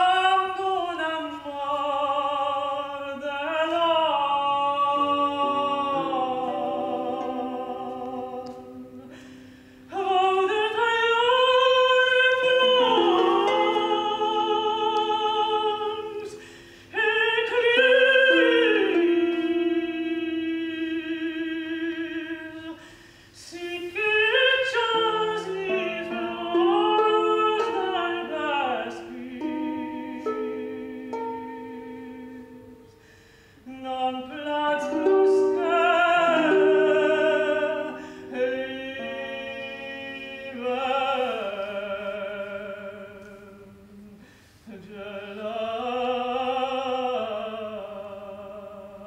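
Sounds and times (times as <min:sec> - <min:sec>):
operatic solo voice singing: 0:00.0 - 0:09.3, 0:09.9 - 0:32.5, 0:33.6 - 0:49.0
sustained accompanying notes: 0:04.9 - 0:10.4.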